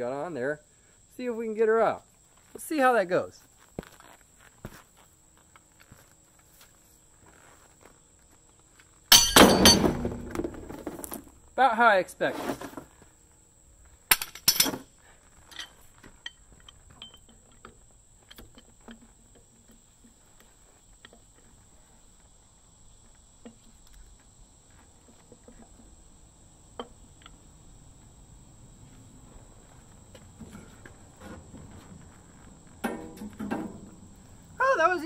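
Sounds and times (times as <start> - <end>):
faint high-pitched hiss: 0.0 - 35.0
light metallic clinks and knocks: 9.1 - 9.9, 14.1 - 14.8, 15.4 - 19.9
steel pipe and wrench clanking: 9.1 - 9.9, 14.1 - 14.8, 15.5 - 17.6.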